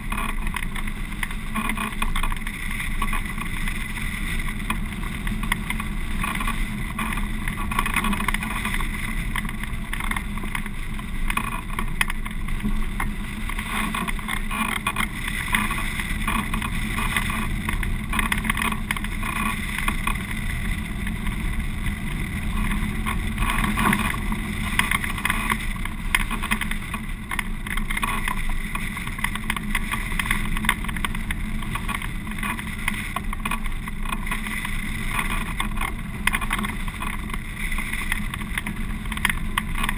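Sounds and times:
wind rushing over microphone: 3.3 - 27.8.

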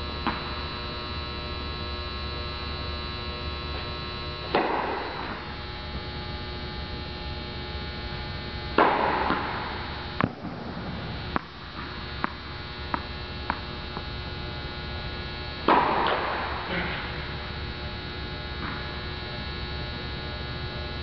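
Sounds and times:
electrical hum: 0.0 - 21.0
racquet hitting tennis ball: 4.5 - 5.5, 8.8 - 13.7, 15.6 - 17.3
tennis balls bouncing: 4.5 - 5.5, 8.8 - 13.7, 15.6 - 17.1.

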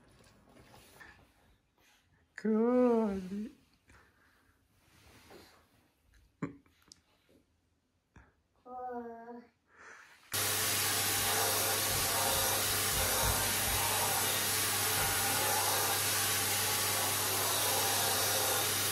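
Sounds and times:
vacuum cleaner running: 10.3 - 18.9.

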